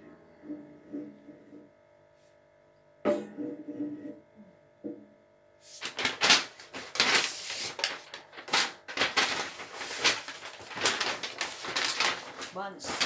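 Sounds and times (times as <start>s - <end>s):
paper bag rustling: 5.7s - 13.0s
plastic wrapping crinkling: 5.7s - 13.0s.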